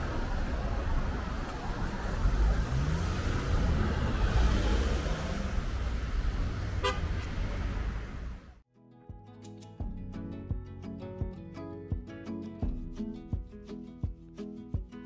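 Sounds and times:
road traffic rumble: 0.0s - 8.6s
vehicle engine accelerating: 0.0s - 8.6s.

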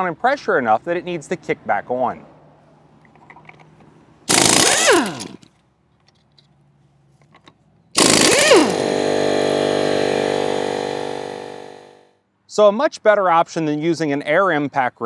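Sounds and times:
pneumatic impact wrench: 4.3s - 5.5s, 8.0s - 12.0s.

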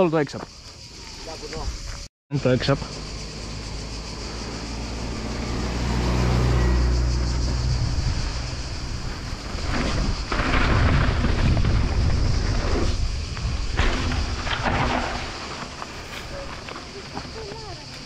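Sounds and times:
wind rushing over microphone: 4.9s - 15.4s
tyres crunching on loose dirt: 8.7s - 18.0s.

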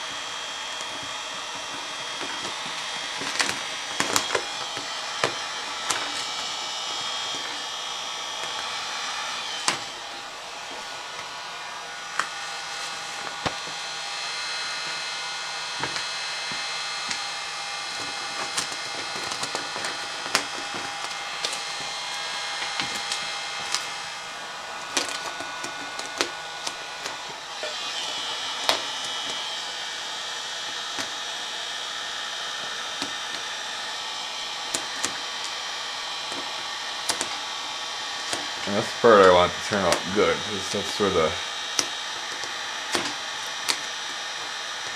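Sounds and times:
vinyl film crackling: 0.0s - 11.3s, 12.0s - 14.0s, 15.7s - 31.4s, 34.6s - 44.9s
heat gun blowing: 0.0s - 44.9s.

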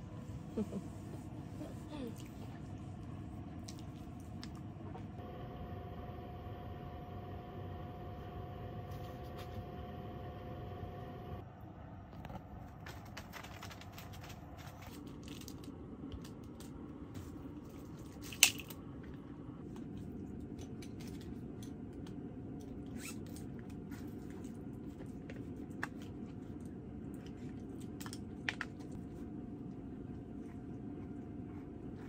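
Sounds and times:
low hum: 0.0s - 32.0s
snack packaging rustling: 12.7s - 18.8s.

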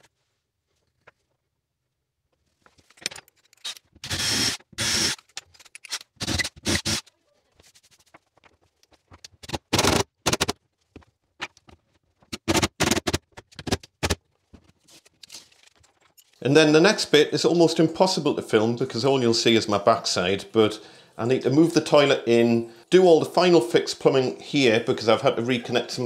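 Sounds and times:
cordless drill driving screws: 3.6s - 7.1s.

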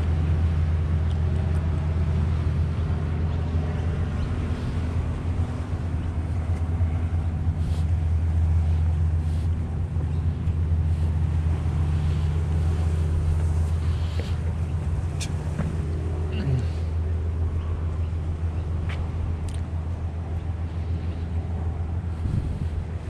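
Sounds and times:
low engine drone: 0.0s - 23.0s.

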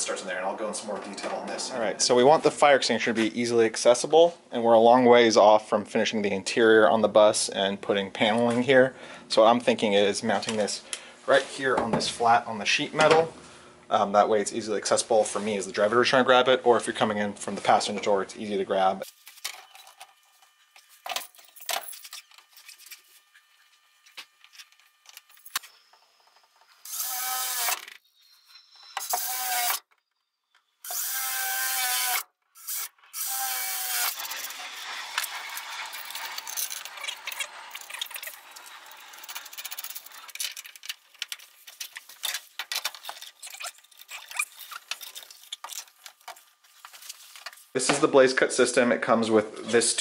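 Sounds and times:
cordless drill boring through metal: 25.5s - 29.9s, 30.8s - 41.6s
scraping and clicking: 34.2s - 47.7s.

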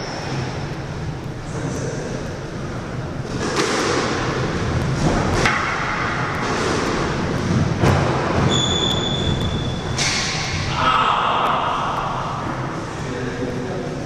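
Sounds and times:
high steady squeak: 8.5s - 10.0s.

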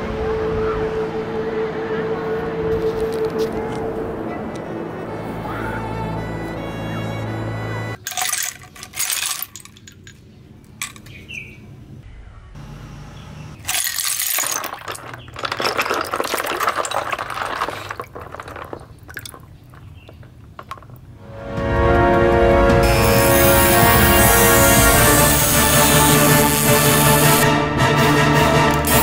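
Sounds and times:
seashells clinking and rattling: 8.0s - 11.2s, 13.6s - 21.1s.

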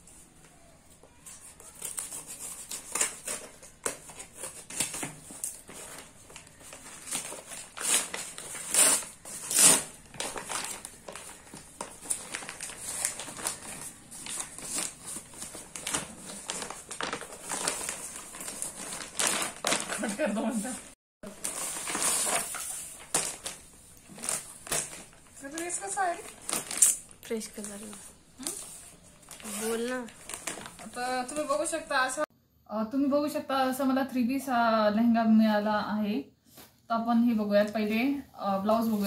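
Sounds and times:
thick paper crinkling: 1.1s - 31.9s
scissors cutting paper: 1.6s - 6.0s, 7.0s - 11.4s.

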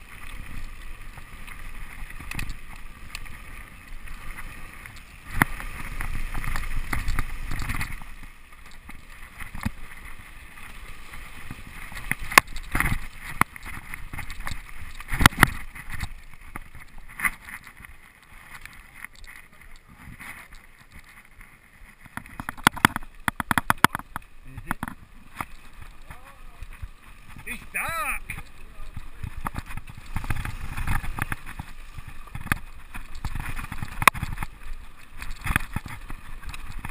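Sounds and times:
tyres crunching over stones: 0.0s - 36.9s
bike rattling and knocking: 22.0s - 27.5s, 35.2s - 36.9s.

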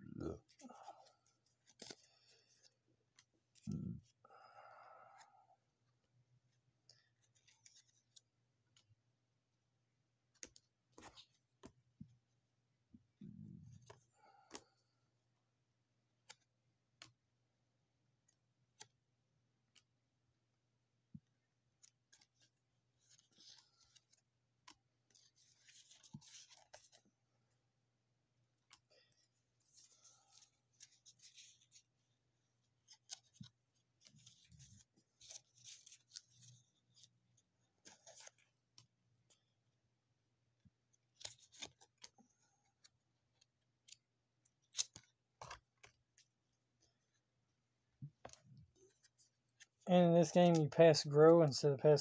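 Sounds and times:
paper cards rustling: 0.5s - 4.2s, 6.9s - 8.9s, 10.3s - 11.8s, 18.2s - 19.0s, 19.6s - 20.0s, 21.6s - 27.6s, 28.5s - 39.6s, 40.5s - 47.4s, 48.0s - 51.2s.

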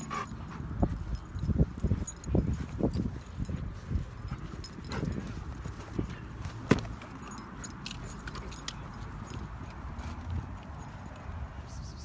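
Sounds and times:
dog collar tags jingling: 0.0s - 11.7s.

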